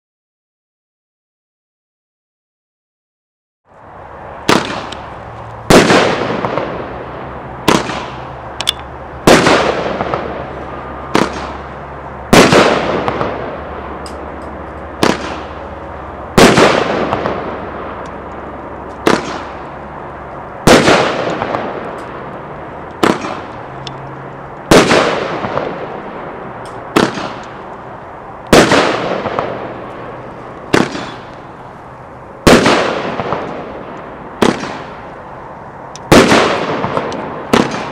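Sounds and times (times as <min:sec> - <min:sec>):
firework bangs: 0:04.3 - 0:08.5, 0:09.2 - 0:19.9, 0:20.6 - 0:22.4, 0:23.0 - 0:23.8, 0:24.7 - 0:27.8, 0:28.5 - 0:35.2, 0:36.1 - 0:37.9.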